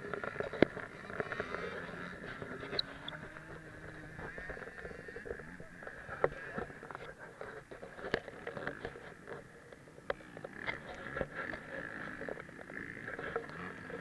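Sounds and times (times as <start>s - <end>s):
motorcycle engines revving: 0.0s - 14.0s.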